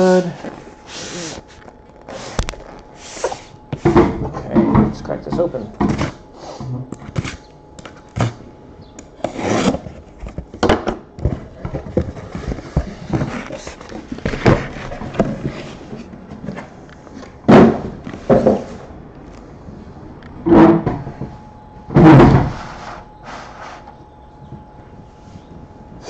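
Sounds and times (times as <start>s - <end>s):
cardboard scraping and rustling: 0.1s - 4.1s, 7.0s - 7.4s, 9.2s - 10.6s, 11.2s - 16.8s.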